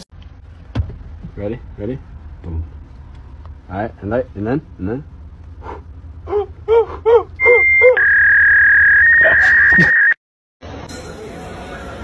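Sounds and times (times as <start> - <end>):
high-pitched beep: 7.4 - 10.2.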